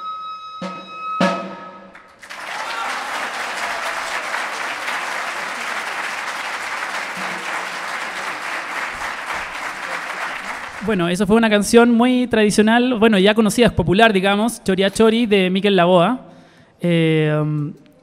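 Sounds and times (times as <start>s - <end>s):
audience applauding: 2.0s - 11.1s.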